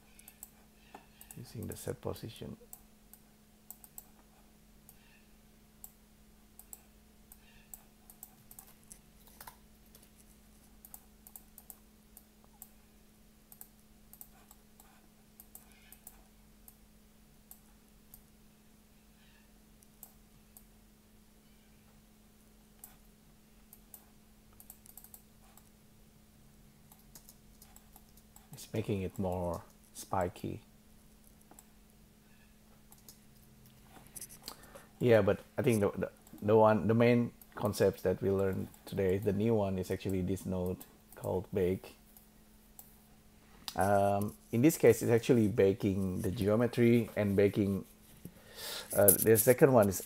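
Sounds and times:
steady low hum: 0.0 - 50.0
mouse and keyboard clicks: 6.6 - 10.2.

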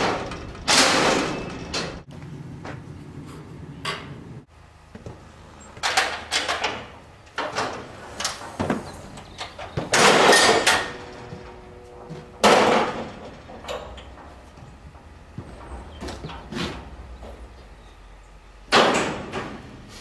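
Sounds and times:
loud metal clattering crashes: 0.0 - 2.0, 9.6 - 14.4, 18.7 - 19.7
metal deck clanking and rattling: 0.0 - 2.1, 5.7 - 17.6, 18.7 - 19.8.

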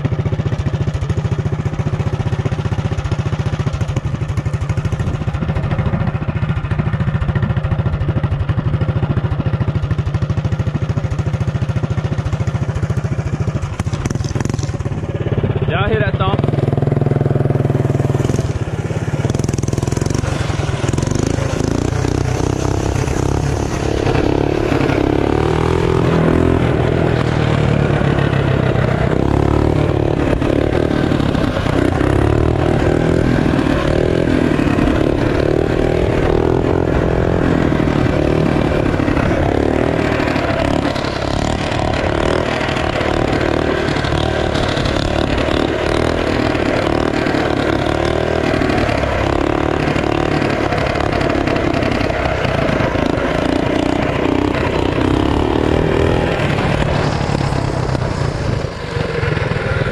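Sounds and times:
small engine revving: 10.3 - 59.9
wind noise on microphone: 49.8 - 59.9.

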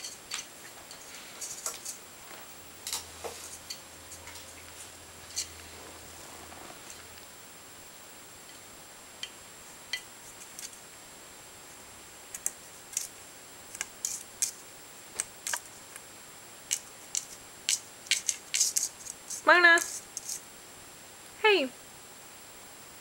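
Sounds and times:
small clicks in metal colander: 16.7 - 20.4.

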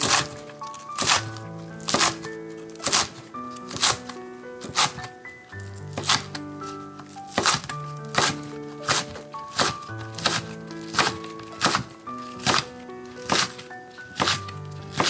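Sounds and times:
background music with held notes: 0.0 - 15.0
knife slicing onto cutting board: 1.9 - 2.2, 2.8 - 4.0, 7.3 - 11.8, 13.2 - 13.6.

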